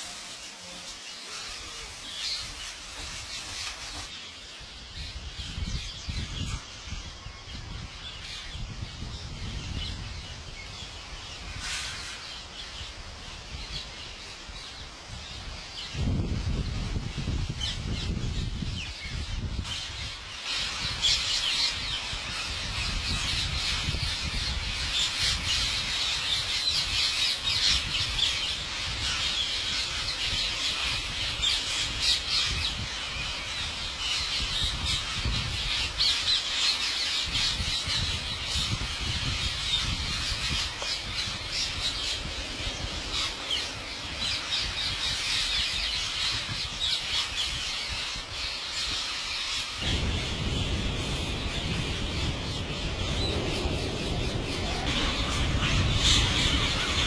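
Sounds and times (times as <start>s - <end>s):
parakeets screeching: 19.9s - 57.0s.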